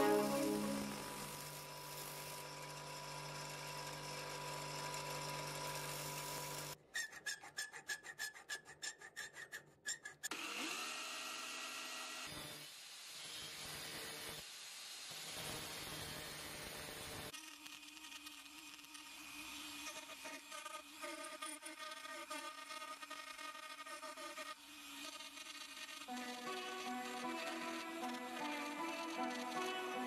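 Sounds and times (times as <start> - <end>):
angle grinder whine: 0.0 - 2.0, 25.2 - 30.0
hand file rasping metal: 7.0 - 10.3
bench grinder grinding blade: 10.3 - 30.0.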